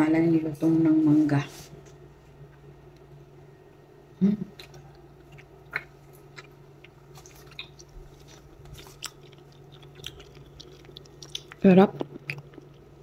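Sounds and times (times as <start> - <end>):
chewing crisp fruit: 4.3 - 13.0.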